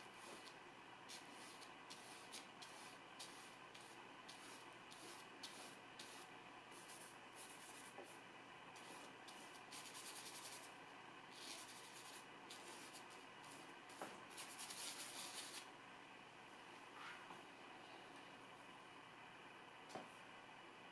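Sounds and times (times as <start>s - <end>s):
scratchy brush strokes on paper: 0.0s - 8.2s, 8.8s - 10.7s, 11.3s - 15.7s.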